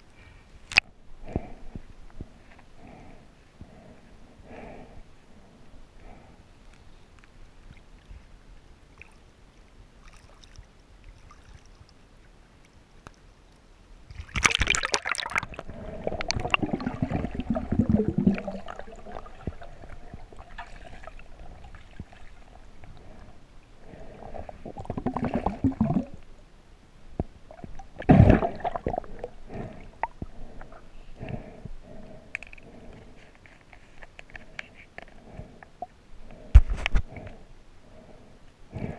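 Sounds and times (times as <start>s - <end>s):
water sloshing and gurgling: 7.4s - 12.4s, 14.1s - 26.3s, 27.2s - 33.2s.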